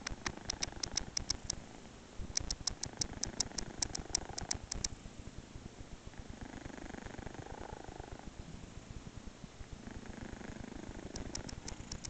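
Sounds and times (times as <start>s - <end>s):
kitten snoring in sharp clicks: 0.0s - 1.7s, 2.4s - 5.0s, 6.4s - 8.3s, 9.8s - 12.0s.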